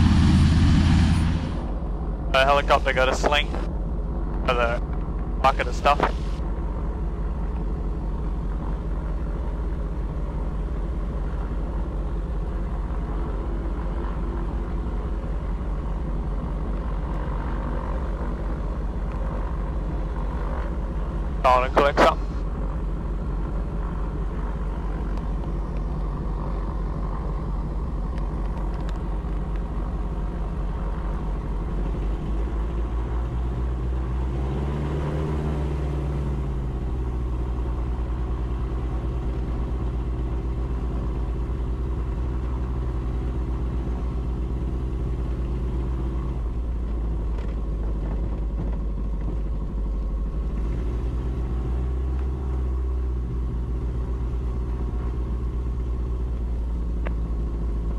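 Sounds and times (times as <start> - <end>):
aircraft engines running: 0.0 - 57.9.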